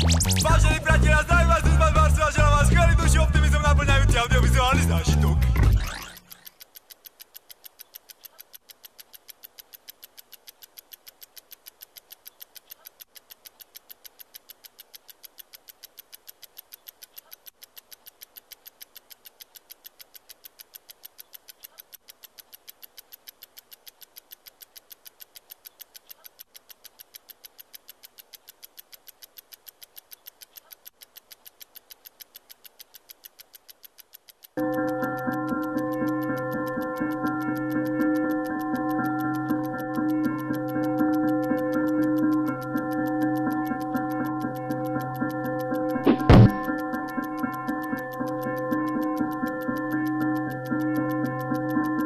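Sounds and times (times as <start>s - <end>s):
alarm clock ticking: 0.0s - 52.0s.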